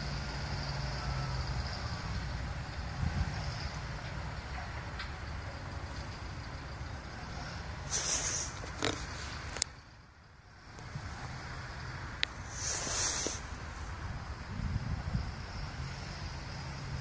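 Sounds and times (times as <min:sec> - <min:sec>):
hissy wind gusts: 0:00.0 - 0:17.0
wind buffeting the microphone: 0:02.6 - 0:04.0, 0:12.5 - 0:16.0.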